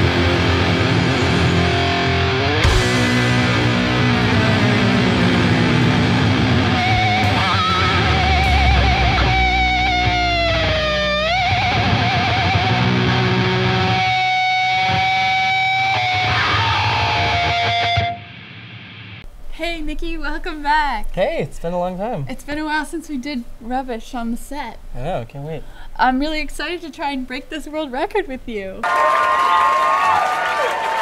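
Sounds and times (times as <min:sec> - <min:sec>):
heavy metal band playing: 0:00.0 - 0:19.2
wavering lead guitar notes: 0:00.0 - 0:19.2.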